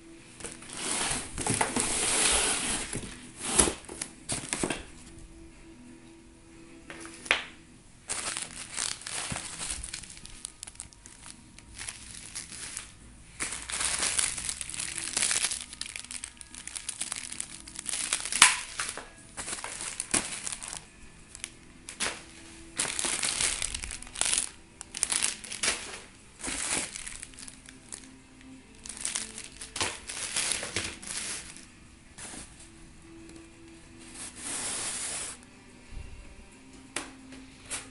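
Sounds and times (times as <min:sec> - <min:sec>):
plastic bags crinkling: 0:08.1 - 0:32.6.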